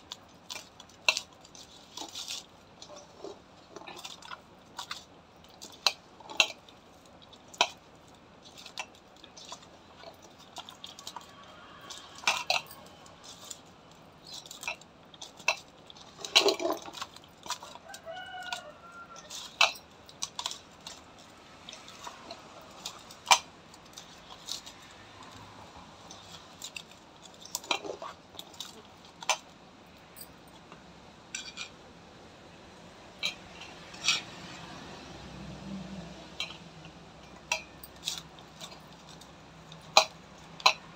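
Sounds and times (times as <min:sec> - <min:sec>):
bangles clinking against bowl: 0:07.3 - 0:21.0, 0:36.3 - 0:40.9.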